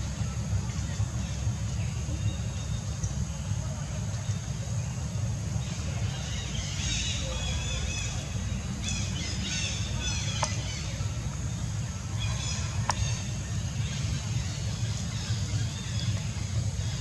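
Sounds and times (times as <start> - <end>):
steady low rumble: 0.0 - 17.0
birds chirping: 0.2 - 17.0.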